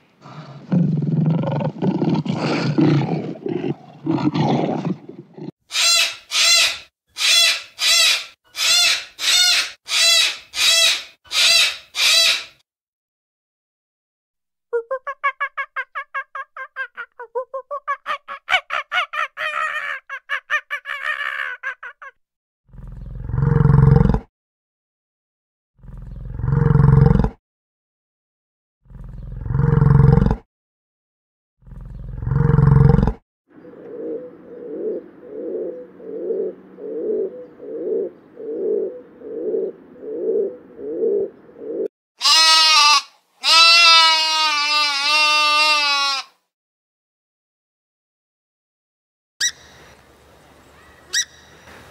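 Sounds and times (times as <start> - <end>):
pigeons cooing: 0.3 - 5.5, 33.6 - 41.9
monkeys calling: 14.8 - 22.1
sheep bleating: 42.2 - 46.4.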